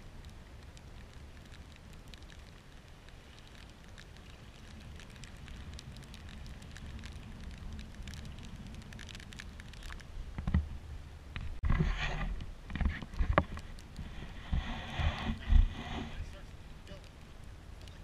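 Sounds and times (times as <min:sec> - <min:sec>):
water fizzing through shells: 0:00.0 - 0:10.1
low steady rumble: 0:00.0 - 0:18.0.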